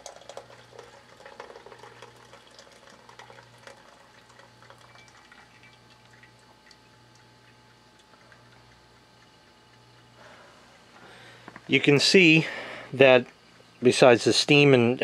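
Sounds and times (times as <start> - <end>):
coffee pouring and dripping: 0.0 - 10.2.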